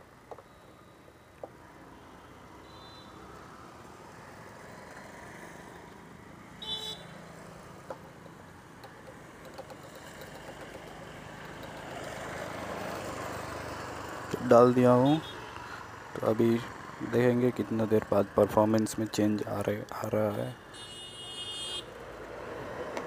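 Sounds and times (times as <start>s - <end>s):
passing traffic: 0.0s - 23.0s
vehicle engines idling: 5.9s - 20.6s.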